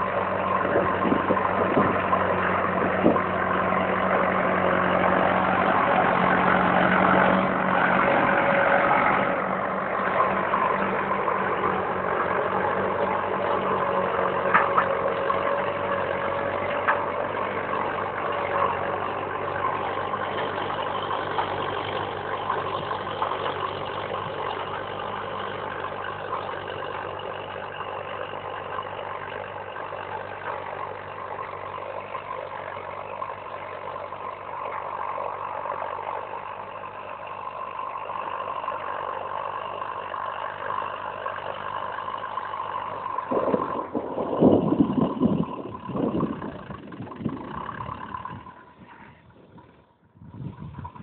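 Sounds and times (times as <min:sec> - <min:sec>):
bursts of rumbling noise: 0:00.0 - 0:20.8, 0:42.7 - 0:51.0
tractor engine running: 0:00.0 - 0:51.0.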